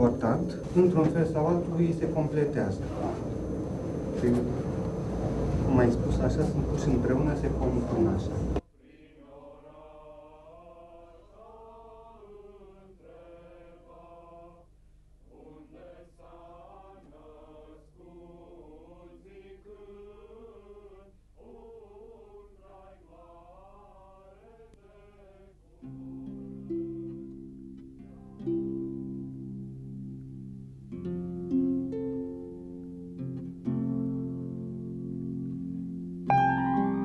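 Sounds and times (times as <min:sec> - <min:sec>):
group singing unaccompanied chant: 0:08.8 - 0:14.7, 0:15.3 - 0:27.2
plucked-string tune: 0:26.3 - 0:37.0.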